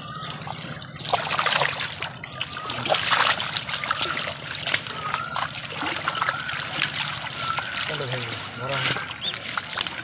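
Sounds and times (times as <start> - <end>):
fish splashing in net: 0.0 - 10.0
water trickling and dripping: 0.0 - 10.0.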